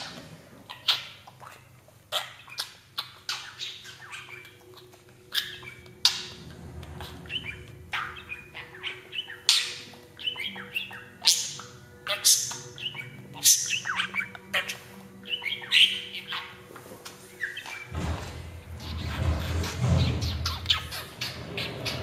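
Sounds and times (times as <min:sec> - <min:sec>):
budgerigar chirping: 0:00.7 - 0:06.2, 0:07.2 - 0:16.6
budgerigar squawking: 0:07.2 - 0:16.6.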